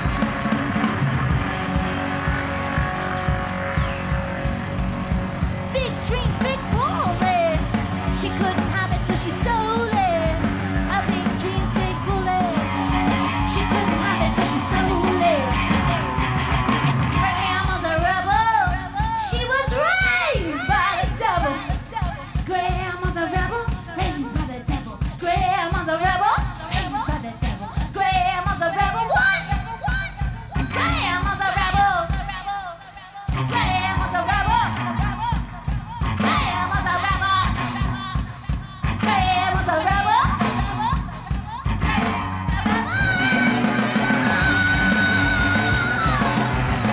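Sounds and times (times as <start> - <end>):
electric guitar: 0.0 - 25.1, 33.3 - 46.9
drum kit: 0.0 - 46.9
woman singing into microphone: 5.8 - 15.7, 17.2 - 41.7.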